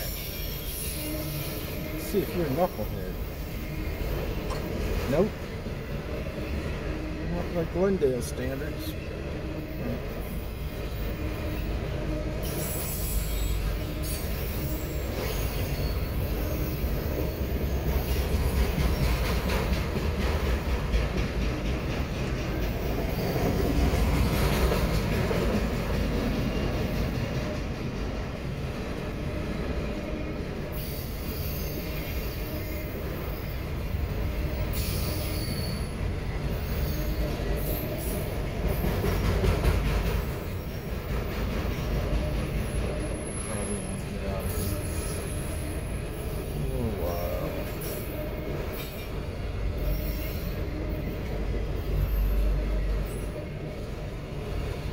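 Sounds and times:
wheel squeal: 0.0 - 3.0, 10.3 - 18.2, 34.5 - 38.8, 49.8 - 50.7
train wheels rumbling on rail: 0.0 - 54.9.

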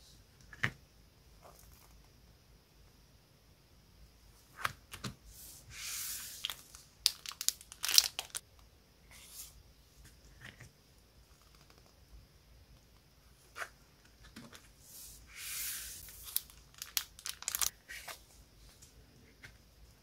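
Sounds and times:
plastic sleeve crinkling: 6.4 - 8.4, 16.0 - 17.7
sharp crackles: 16.3 - 17.7.

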